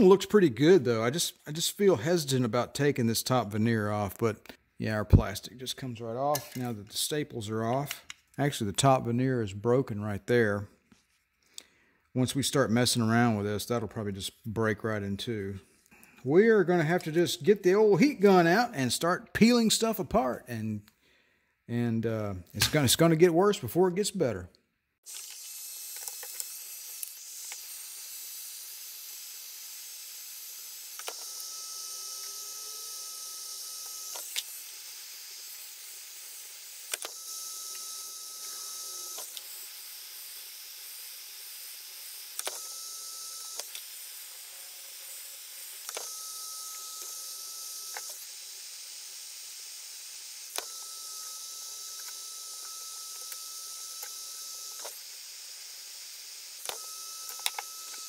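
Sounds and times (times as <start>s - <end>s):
sharp clicks: 42.4s - 42.6s.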